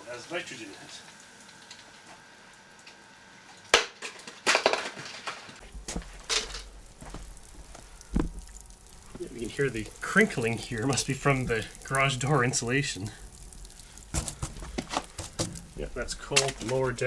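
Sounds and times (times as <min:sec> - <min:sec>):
crackling and crinkling: 0:00.7 - 0:17.0
bottle cracking on concrete: 0:03.7 - 0:05.3, 0:14.1 - 0:15.7.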